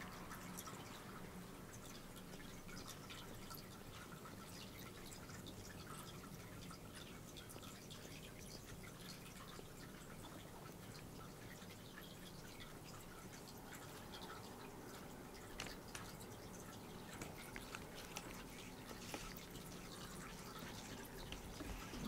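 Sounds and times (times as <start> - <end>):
low room hum: 0.0 - 22.0
cat licking fur: 17.0 - 22.0.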